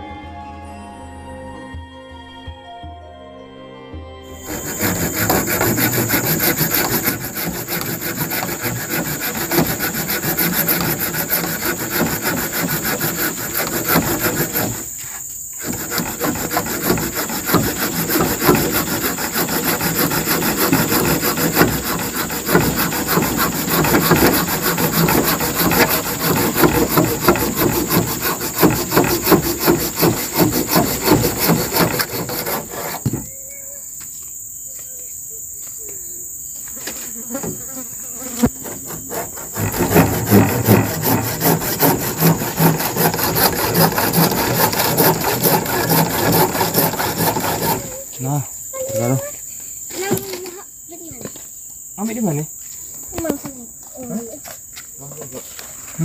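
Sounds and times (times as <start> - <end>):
high insect drone: 4.3 - 56.0
hand tool rasping wood: 4.4 - 33.3, 37.4 - 49.2.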